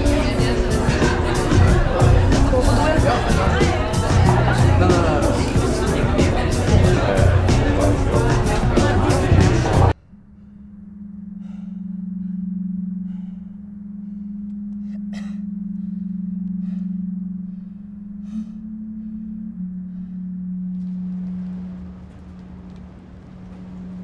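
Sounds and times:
low steady drone: 0.0s - 24.0s
faint clicks: 22.0s - 23.6s.

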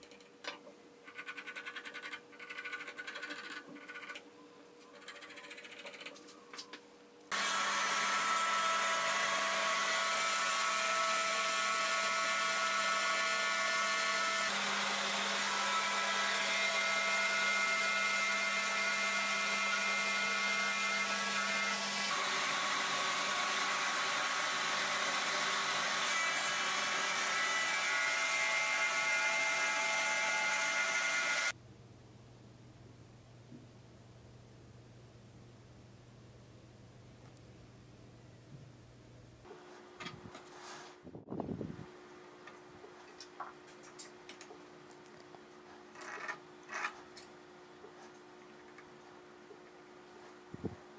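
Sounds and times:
trim router cutting wood: 7.3s - 31.5s.

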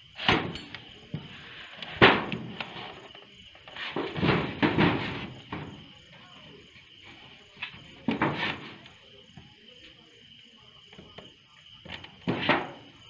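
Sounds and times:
night insects chirping: 0.0s - 13.0s
knocks and rustles: 0.2s - 5.9s, 7.6s - 8.9s, 11.8s - 12.9s.

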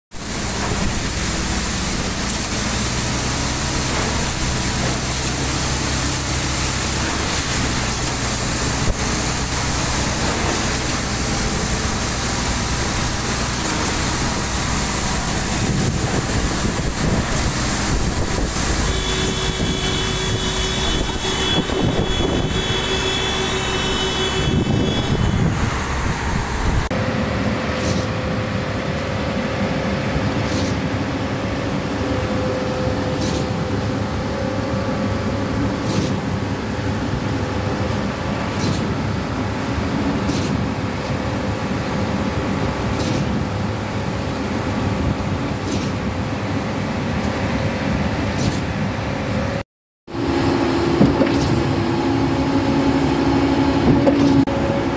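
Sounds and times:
diesel truck engines running: 0.2s - 49.6s
high whine: 10.7s - 30.3s.

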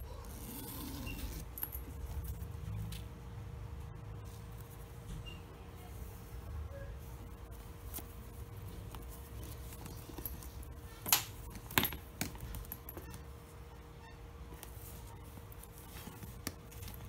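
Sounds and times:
faint steady hum: 0.0s - 17.0s
hand rustling in bag lining: 7.0s - 11.7s.

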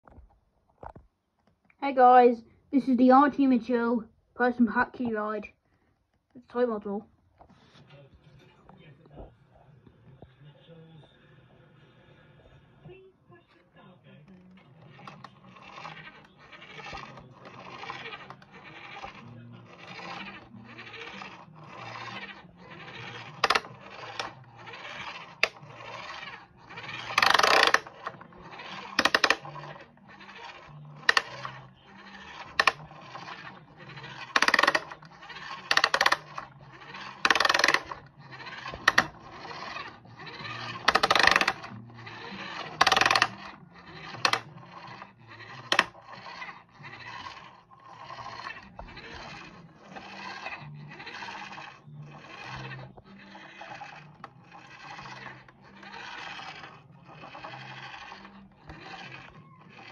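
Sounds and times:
plastic toy clattering: 14.8s - 59.9s
toy van wheels rattling on floor: 14.9s - 59.9s.

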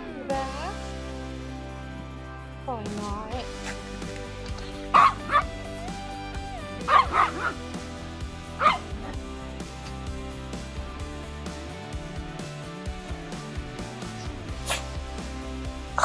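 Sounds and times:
background music: 0.0s - 16.0s
small dogs yipping: 4.9s - 5.5s, 6.8s - 7.6s, 8.6s - 8.9s.

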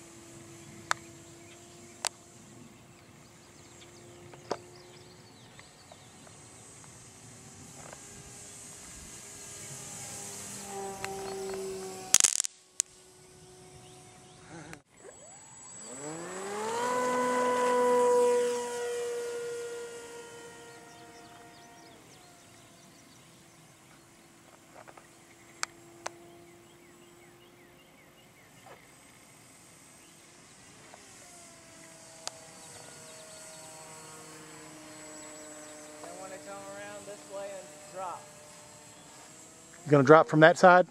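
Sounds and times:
electric model plane motor whining: 0.0s - 40.9s.

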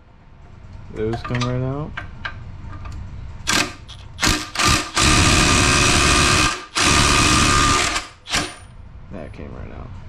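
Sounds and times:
impact wrench hammering: 3.5s - 8.7s.

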